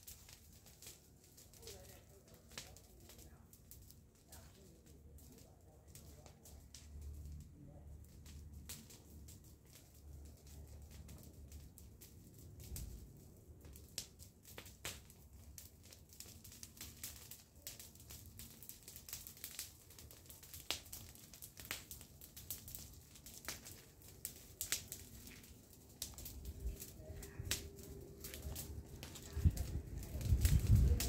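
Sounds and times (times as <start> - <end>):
fire crackling and popping: 0.0 - 31.0.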